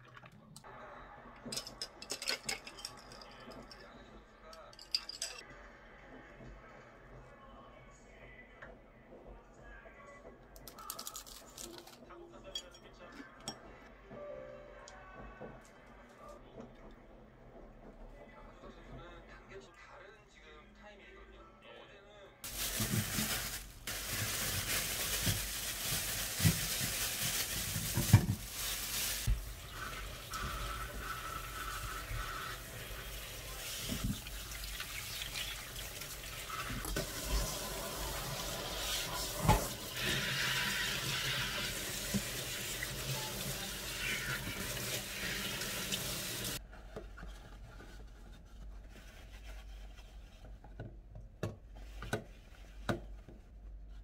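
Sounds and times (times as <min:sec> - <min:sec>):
kitchen tap running: 0:22.5 - 0:46.6.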